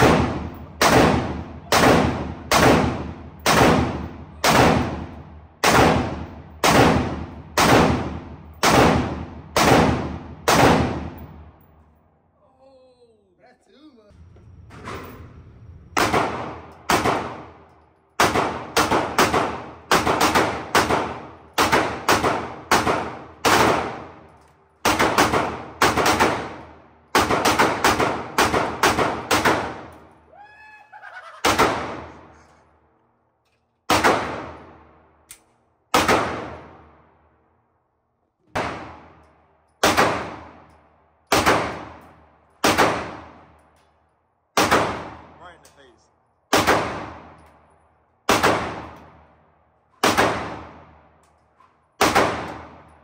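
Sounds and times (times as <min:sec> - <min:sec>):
echoing gunshots: 0:00.0 - 0:11.6, 0:15.9 - 0:29.9, 0:31.4 - 0:32.4, 0:33.9 - 0:35.2, 0:35.9 - 0:37.2, 0:38.5 - 0:40.7, 0:41.3 - 0:43.6, 0:44.5 - 0:45.5, 0:46.5 - 0:47.4, 0:48.2 - 0:51.2, 0:52.0 - 0:53.0.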